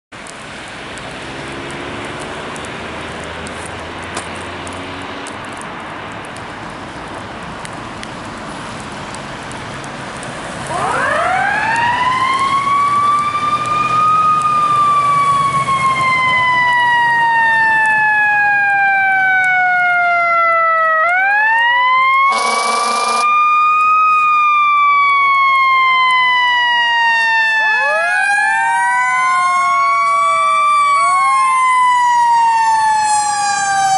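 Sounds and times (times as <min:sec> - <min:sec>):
passing road traffic: 0:00.2 - 0:33.9
fire truck siren: 0:10.4 - 0:33.9
ambulance siren wailing: 0:10.6 - 0:33.9.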